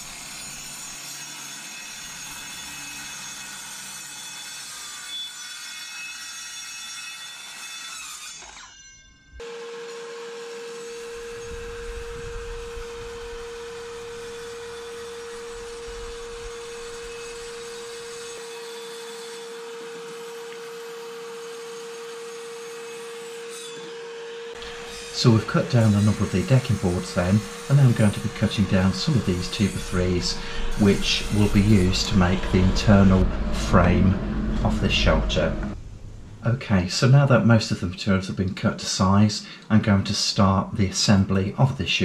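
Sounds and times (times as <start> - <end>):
circular saw cutting wood: 0.0 - 35.8
dust extractor whine and hiss: 9.4 - 18.8, 23.7 - 37.8.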